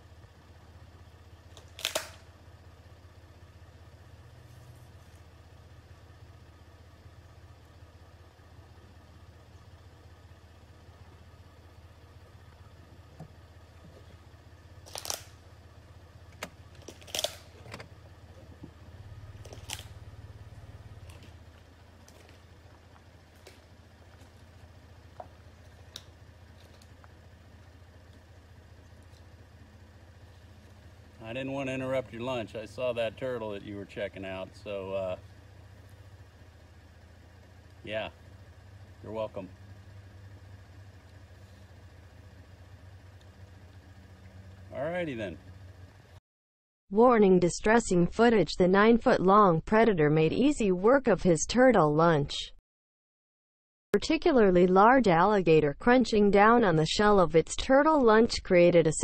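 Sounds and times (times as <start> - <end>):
car engine idling: 0.0 - 46.2
steady low hum: 0.0 - 46.2, 54.0 - 59.0.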